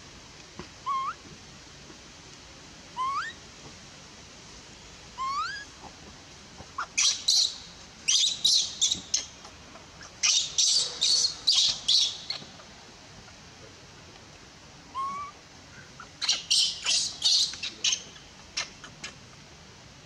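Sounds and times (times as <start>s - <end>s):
baby monkey crying: 0.8s - 1.2s, 3.0s - 3.4s, 5.2s - 5.7s, 14.9s - 15.4s.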